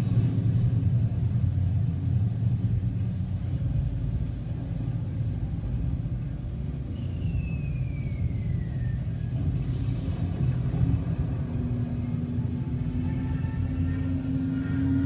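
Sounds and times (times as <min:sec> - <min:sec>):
steady low rumble: 0:00.0 - 0:15.0
falling bomb whistle: 0:06.9 - 0:09.4.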